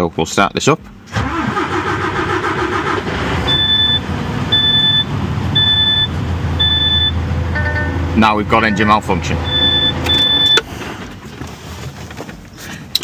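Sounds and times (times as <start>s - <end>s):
diesel engine starting and idling: 0.9s - 11.8s
dashboard warning buzzer beeping: 3.5s - 8.0s, 8.6s - 10.6s.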